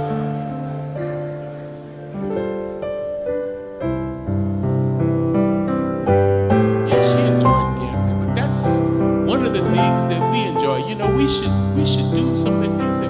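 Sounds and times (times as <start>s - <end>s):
electric keyboard chords: 0.0s - 13.0s.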